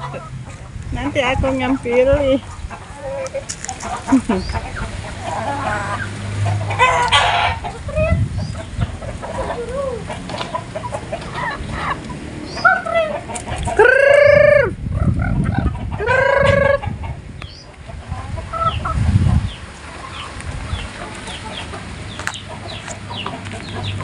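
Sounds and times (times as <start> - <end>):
chicken calls: 0.0 - 24.0
chickens clucking: 0.0 - 24.0
chicks cheeping: 0.0 - 24.0.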